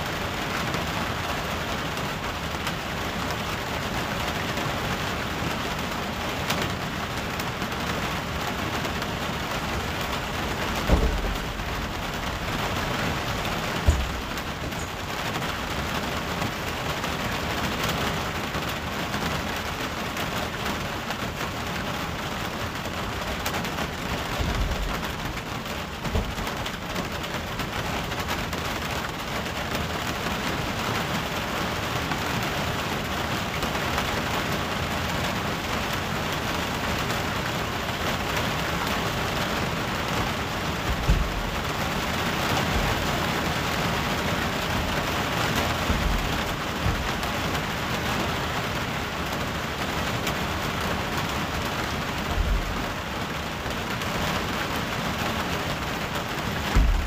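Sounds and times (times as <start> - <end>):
heavy rain on metal roof: 0.0 - 57.0
thunder rumbles: 8.3 - 16.6, 40.1 - 47.8.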